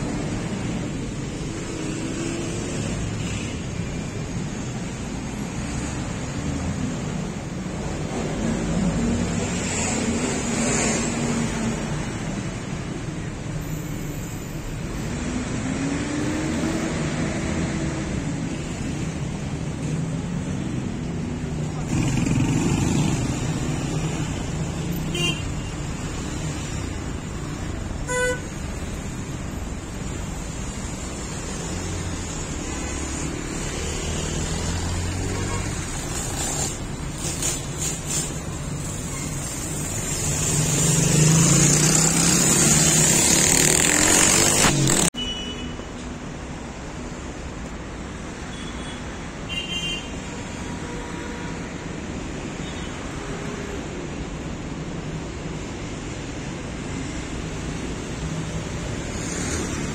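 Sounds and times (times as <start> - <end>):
city street traffic: 0.0 - 59.9
car horn toot: 25.1 - 25.5, 28.1 - 28.5.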